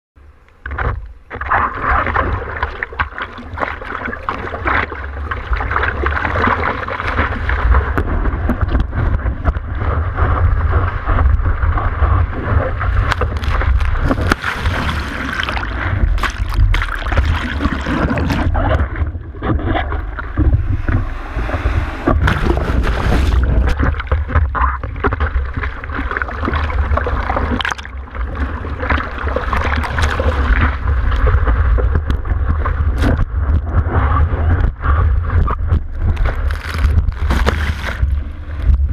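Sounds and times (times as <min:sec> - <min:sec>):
sharp splashes and knocks: 0:00.7 - 0:33.9, 0:34.5 - 0:38.9
sea water sloshing and splashing: 0:00.8 - 0:38.9
wind buffeting microphone: 0:07.5 - 0:25.7.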